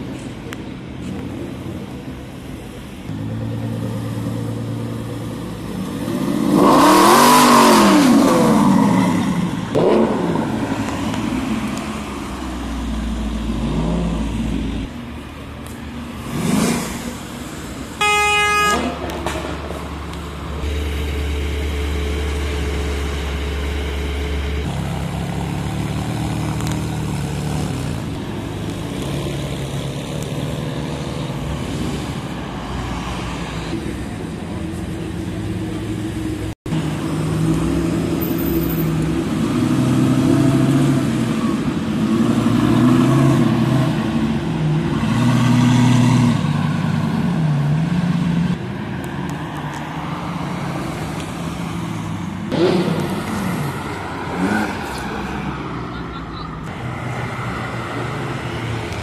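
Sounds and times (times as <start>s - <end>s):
car engine revving loudly: 5.8s - 10.8s, 52.5s - 55.0s
car horn toot: 18.0s - 19.0s
sports cars driving past: 18.7s - 59.0s.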